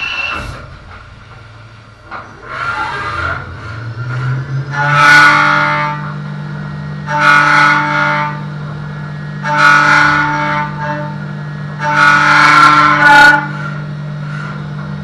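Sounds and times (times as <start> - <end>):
metal cutting whine: 0.0 - 11.8.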